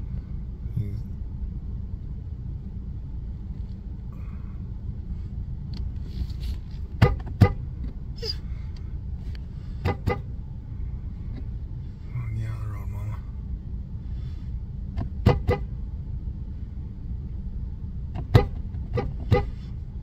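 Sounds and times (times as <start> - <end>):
vehicle cab rumble: 0.0 - 20.0
sharp knocks: 15.0 - 15.6, 18.2 - 19.6.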